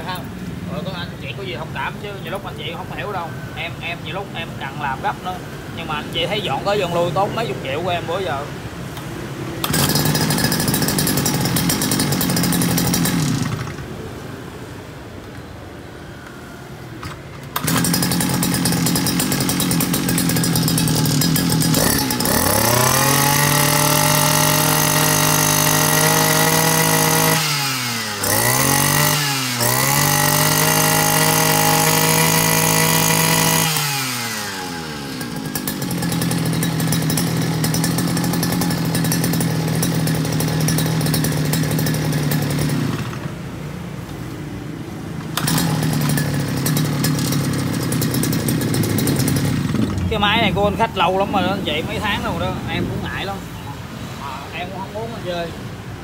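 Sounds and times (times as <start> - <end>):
brush-cutter engine revving: 0.0 - 3.1, 9.0 - 14.1, 17.0 - 44.4, 45.1 - 53.4.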